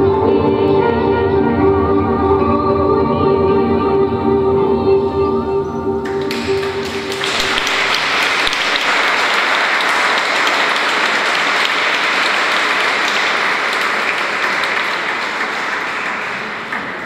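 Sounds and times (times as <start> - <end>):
audience applauding: 6.0 - 17.0.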